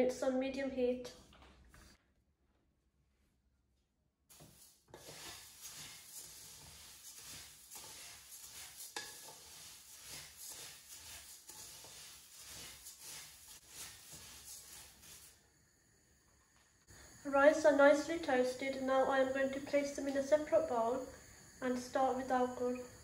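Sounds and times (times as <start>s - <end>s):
puffed rice scraping in a pan: 4.3s - 15.4s.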